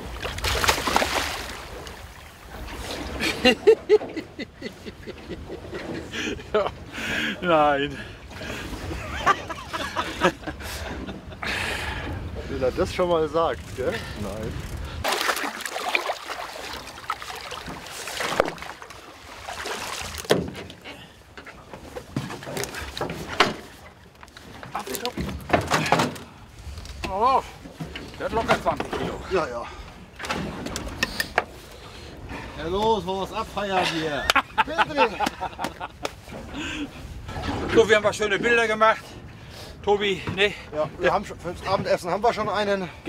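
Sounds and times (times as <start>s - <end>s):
fish splashing in water: 0.2s - 2.1s, 15.0s - 20.3s.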